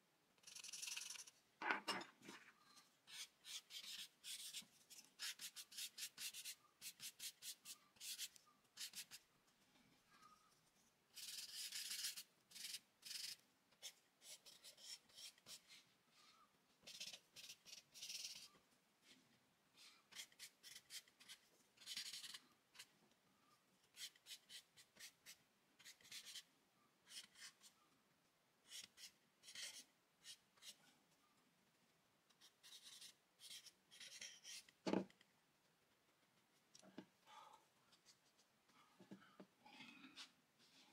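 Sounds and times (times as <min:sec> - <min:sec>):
charcoal scratching on paper: 0:00.4 - 0:01.3, 0:03.1 - 0:09.2, 0:11.2 - 0:15.9, 0:16.9 - 0:18.5, 0:20.1 - 0:22.9, 0:23.9 - 0:27.7, 0:28.7 - 0:30.8, 0:32.4 - 0:34.7.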